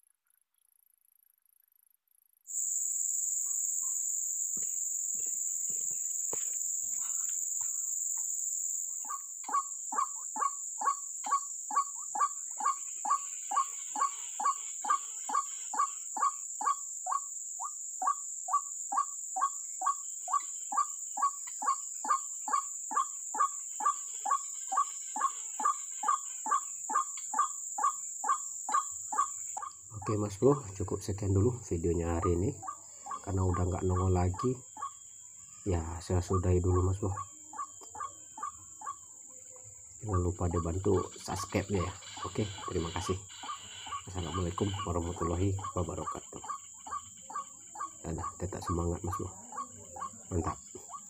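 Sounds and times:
high insect drone: 2.5s - 51.0s
bird harsh kwak calls: 8.9s - 35.0s, 35.7s - 39.0s, 40.0s - 51.0s.

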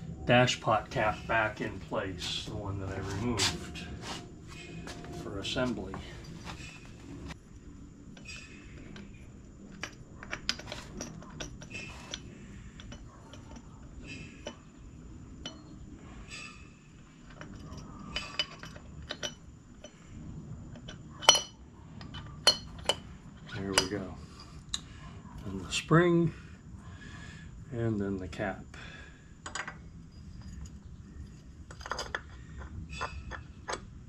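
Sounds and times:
small metal parts clinking: 8.1s - 14.7s, 15.4s - 20.1s, 20.7s - 24.6s, 29.4s - 34.0s.

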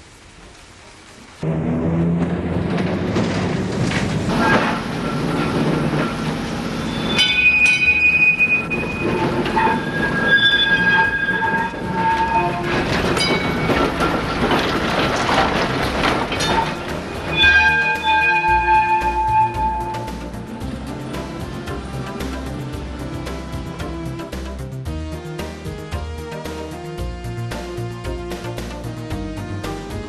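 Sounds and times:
electric tram running on rails: 0.0s - 30.0s
tram wheels squealing: 2.2s - 24.2s.

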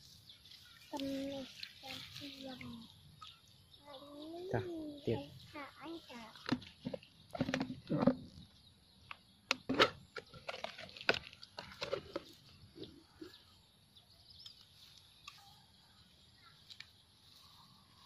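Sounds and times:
plastic tub knocking and rustling: 6.4s - 8.4s.

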